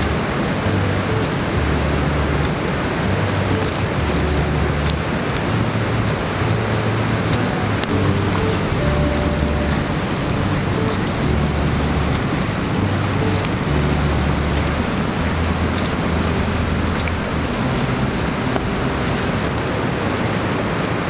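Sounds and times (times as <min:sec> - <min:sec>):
low sustained music notes: 0:00.0 - 0:21.0
fire crackles and pops: 0:01.2 - 0:19.9
wood fire burning: 0:01.2 - 0:20.6.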